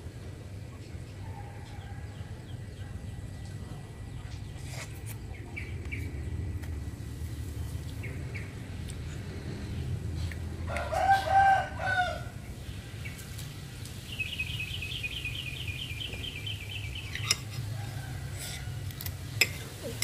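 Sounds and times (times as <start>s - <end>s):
steady low hum: 0.0s - 20.0s
rooster crowing: 10.7s - 12.4s, 17.6s - 19.0s.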